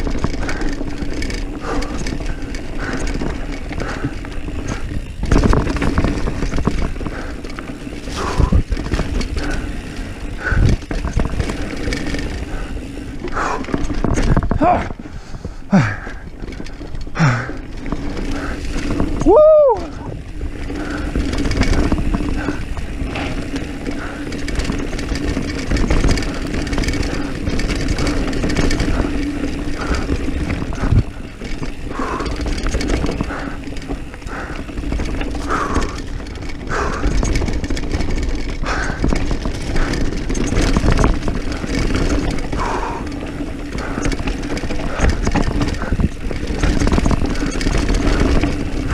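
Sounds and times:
bike rattling over bumps: 0:00.0 - 0:48.9
wind rush and tyre noise: 0:00.0 - 0:48.9
person shouting woo: 0:19.2 - 0:19.9.

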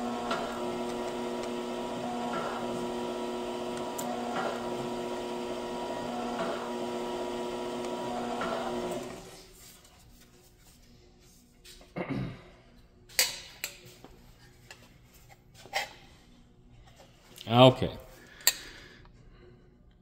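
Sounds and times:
electric motor humming: 0:00.0 - 0:09.4.

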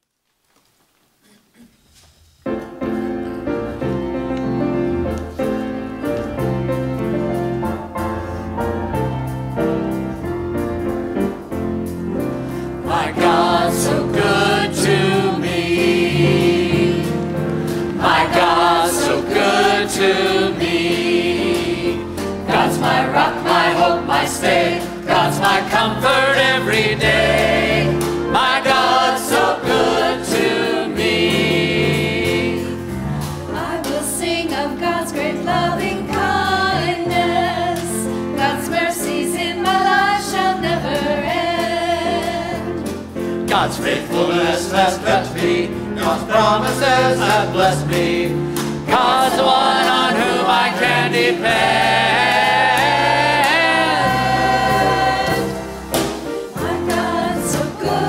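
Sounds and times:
grand piano playing: 0:02.4 - 0:58.0
mixed choir singing: 0:12.6 - 0:58.0.

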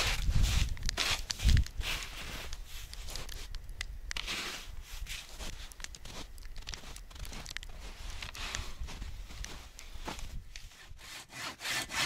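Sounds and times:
snow shovel scraping: 0:00.0 - 0:02.9, 0:04.2 - 0:06.3
footsteps crunching in snow: 0:00.0 - 0:03.5, 0:04.2 - 0:10.8.

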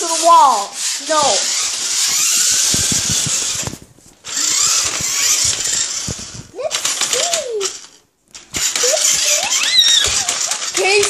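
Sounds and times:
toy truck motor whirring: 0:00.0 - 0:11.0
clicks and rattles: 0:04.8 - 0:11.0.

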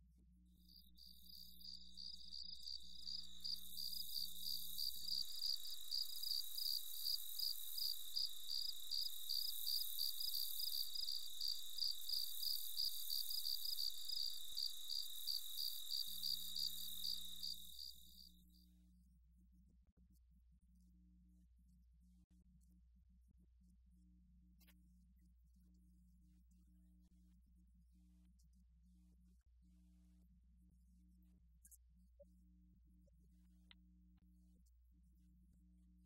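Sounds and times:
crickets chirping: 0:00.6 - 0:18.3.

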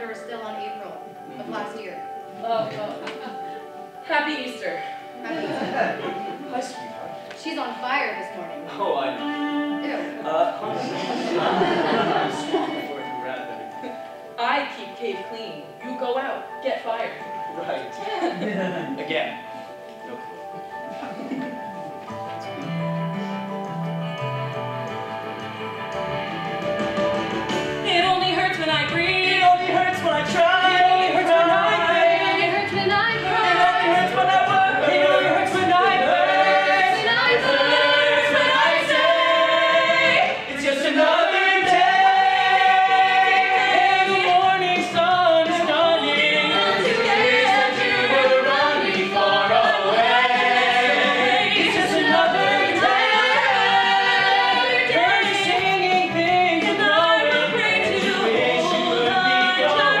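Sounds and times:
group singing musical theatre: 0:04.9 - 0:07.6, 0:10.0 - 0:14.3, 0:25.3 - 1:00.0.

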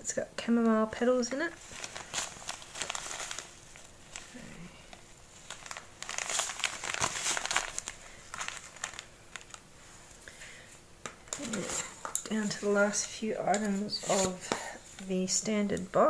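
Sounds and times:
plastic bag crinkling: 0:01.4 - 0:10.2, 0:11.3 - 0:15.3.

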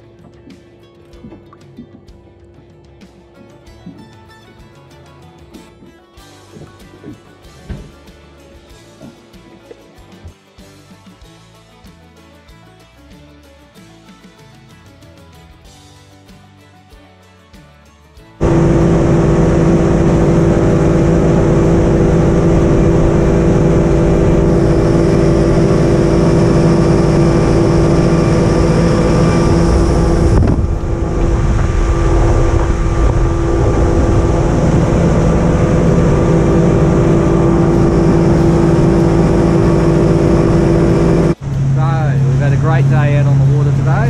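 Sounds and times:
water rushing off hull: 0:18.4 - 0:41.4
outboard motor running: 0:18.4 - 0:44.0.

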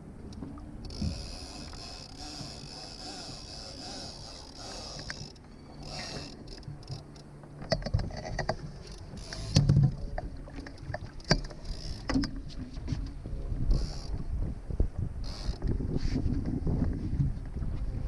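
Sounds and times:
water splashing against hull: 0:00.0 - 0:18.0
boat fittings knocking and clicking: 0:05.0 - 0:13.2.

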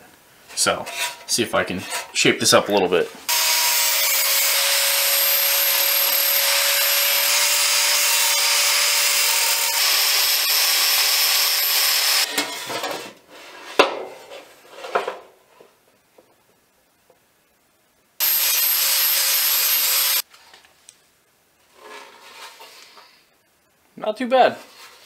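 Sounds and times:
angle grinder grinding steel: 0:03.3 - 0:12.3, 0:18.2 - 0:20.2.

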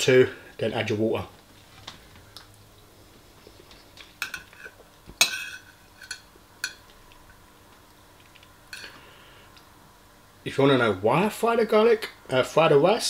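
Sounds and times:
metal spoon clinking on ceramic bowl: 0:05.2 - 0:06.8.

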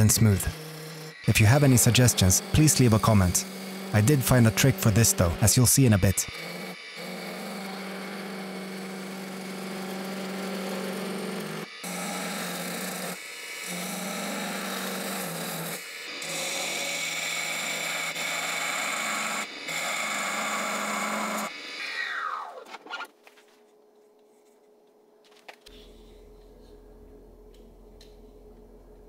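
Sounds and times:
gouge cutting wood on lathe: 0:00.0 - 0:22.0
lathe motor hum: 0:00.0 - 0:22.5
lathe running down whine: 0:00.0 - 0:22.5.

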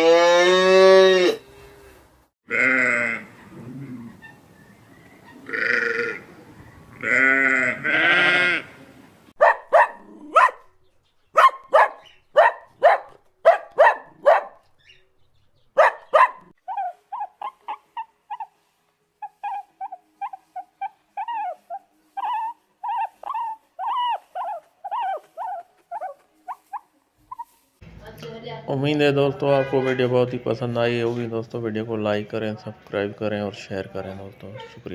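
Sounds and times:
deer groaning: 0:02.5 - 0:04.4, 0:05.4 - 0:08.8
dog barking: 0:09.4 - 0:10.7, 0:11.3 - 0:14.7, 0:15.8 - 0:16.5
puppy yapping: 0:09.4 - 0:10.7, 0:11.4 - 0:14.6, 0:15.8 - 0:18.5, 0:19.2 - 0:27.5.

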